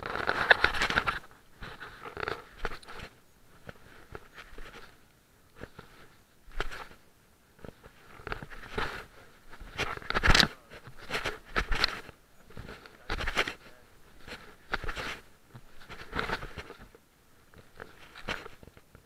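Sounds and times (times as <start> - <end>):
cloth rubbing over microphone: 7.6 - 18.7.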